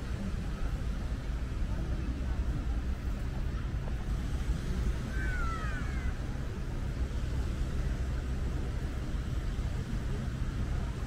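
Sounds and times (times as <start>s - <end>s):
urban and traffic rumble: 0.0s - 11.0s.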